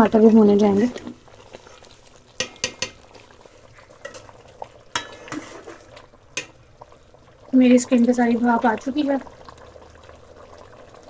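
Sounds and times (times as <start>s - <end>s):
faint sizzle of frying: 0.0s - 11.0s
metal ladle scraping a pot: 4.0s - 6.5s.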